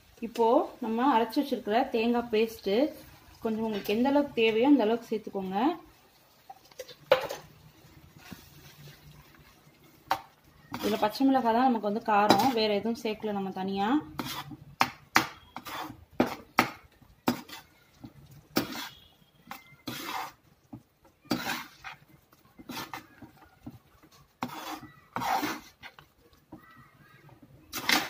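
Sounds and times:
spoon scraping pan bottom: 10.2 - 11.2, 14.1 - 14.6, 15.4 - 16.5, 17.3 - 17.8, 18.5 - 20.4, 21.3 - 26.1, 27.7 - 28.0.

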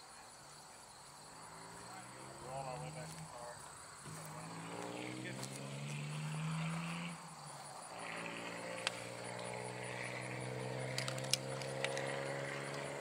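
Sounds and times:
insects buzzing faintly: 0.0 - 13.0
distant engine droning: 0.8 - 13.0
sharp clicks: 10.9 - 12.1.

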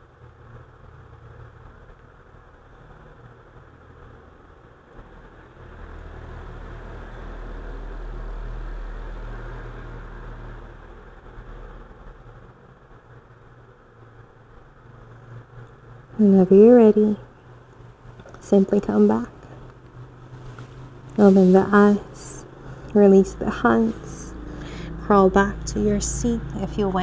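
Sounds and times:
passing vehicle engine rumble: 0.0 - 27.0
steady low hum: 0.0 - 27.0.

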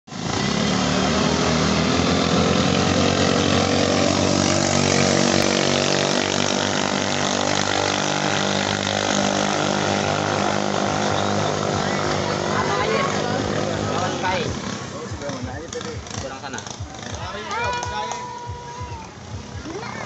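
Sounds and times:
small boat engines running at high power: 0.1 - 20.0.

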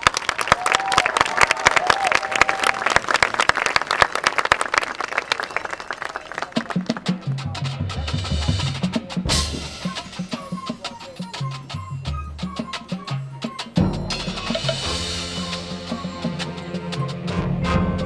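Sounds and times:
marching band playing: 6.4 - 18.0
rapid percussion hits: 6.5 - 18.0.

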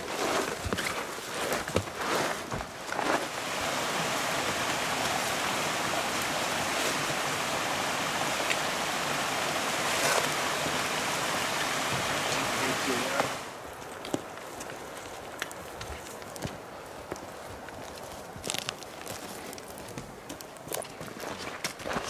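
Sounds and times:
backpack and clothing rustling: 0.0 - 3.4, 13.1 - 22.0
creek rushing: 0.0 - 15.3.

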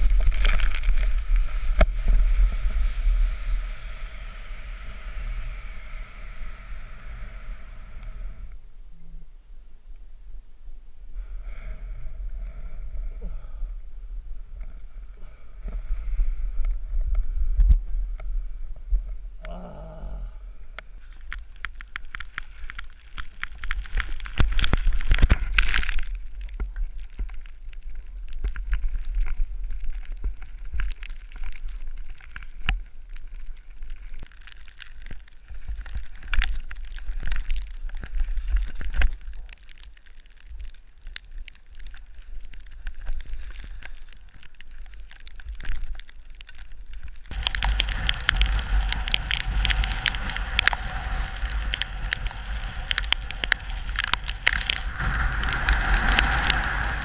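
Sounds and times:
skis scraping over snow: 0.0 - 6.5, 47.3 - 57.0
wind rumble on microphone: 0.0 - 39.8, 40.4 - 57.0.

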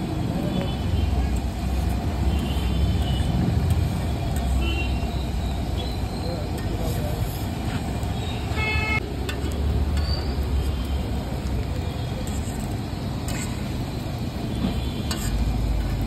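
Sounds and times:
street traffic rumbling: 0.0 - 16.0.

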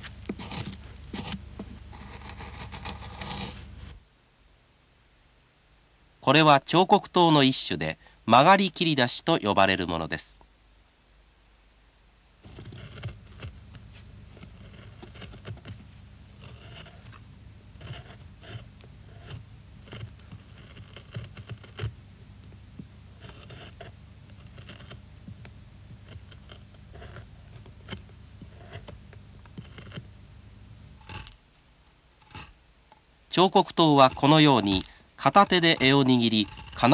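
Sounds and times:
knife paring wood: 0.0 - 3.8, 12.4 - 30.1, 30.9 - 31.4, 32.2 - 32.6, 33.3 - 36.9
low steady hum: 0.0 - 36.9.

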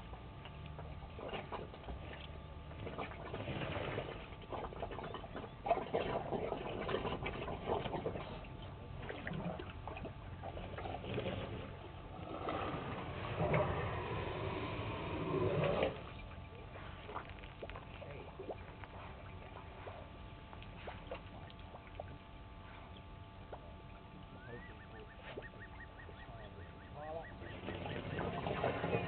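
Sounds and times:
water splashes and drips: 16.8 - 22.3
bird calling: 22.7 - 29.0.

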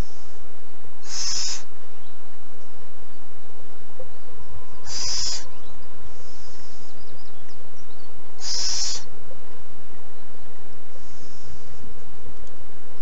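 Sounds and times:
owlet hissing calls: 0.0 - 0.4, 1.0 - 2.1, 4.5 - 9.2, 10.9 - 11.9.

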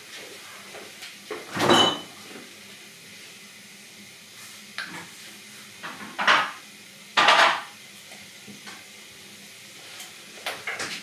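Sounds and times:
dishes clattering and scraping: 1.5 - 2.2, 5.9 - 6.6, 7.2 - 7.7.

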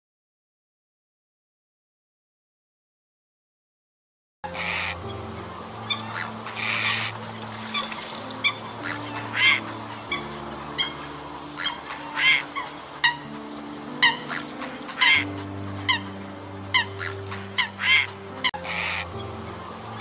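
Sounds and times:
background music with low notes: 4.4 - 20.0
coots honking: 4.5 - 20.0.

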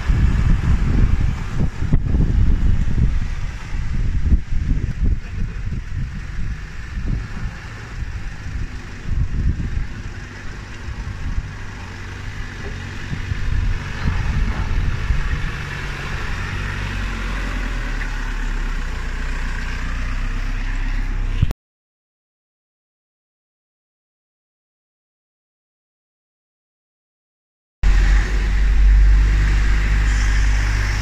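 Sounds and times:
off-road vehicle engine rumbling: 0.0 - 21.5, 27.8 - 31.0.

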